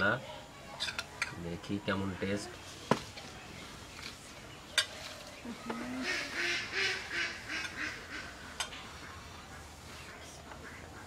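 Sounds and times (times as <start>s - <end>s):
ducks quacking: 5.5s - 11.0s.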